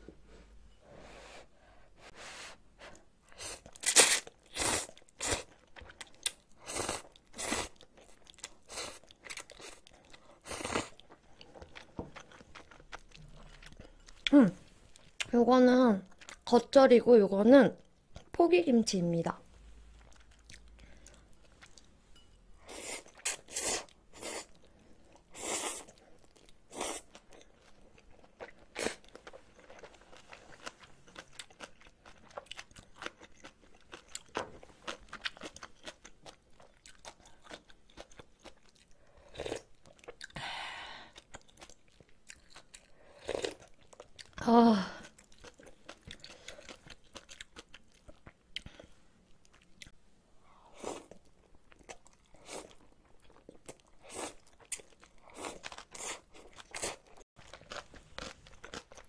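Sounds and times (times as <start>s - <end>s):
chewing: 24.4s - 40.4s, 41.2s - 44.4s, 45.2s - 50.0s, 50.8s - 59.0s.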